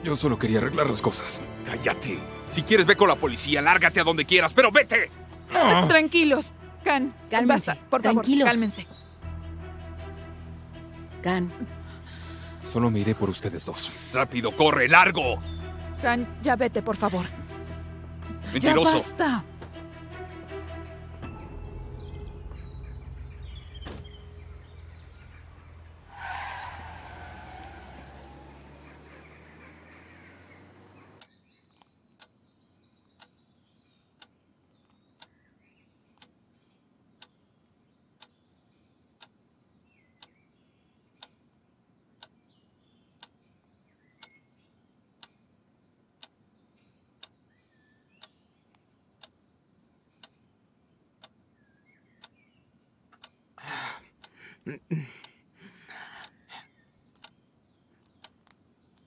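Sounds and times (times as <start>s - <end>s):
background music: 0.0s - 30.3s
car starting and pulling away: 19.6s - 31.2s
car door slamming: 23.7s - 24.3s
mantel clock ticking: 37.2s - 37.4s, 39.2s - 39.4s, 41.2s - 41.4s, 50.2s - 50.4s, 53.2s - 53.5s.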